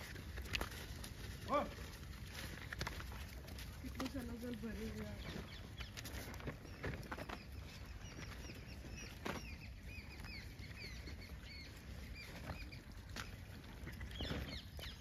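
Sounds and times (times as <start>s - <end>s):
sharp taps on dry ground: 0.0s - 10.6s
rustles on dry leaves: 0.0s - 15.0s.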